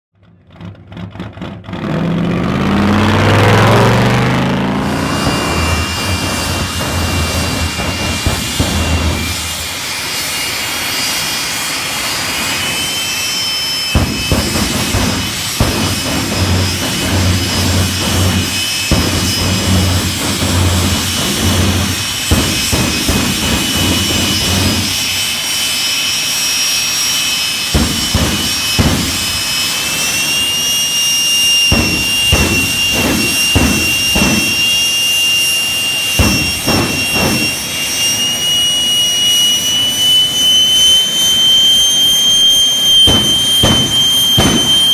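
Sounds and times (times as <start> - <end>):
turbine engine whine: 0.2 - 44.9
deep pulsing rumble: 0.5 - 10.0, 14.0 - 25.2, 31.5 - 38.5.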